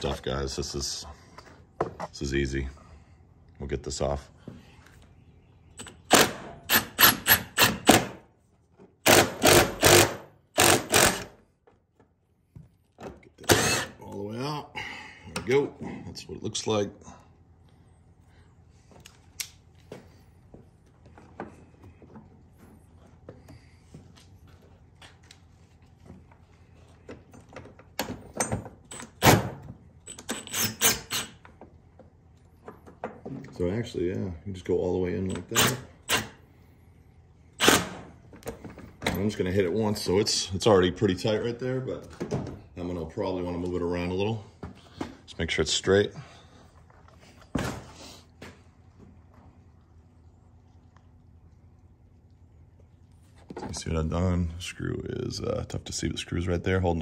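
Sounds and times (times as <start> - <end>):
impact driver bursts: 5.8 - 8.2, 9.0 - 11.4, 13.4 - 14.0, 37.6 - 38.1.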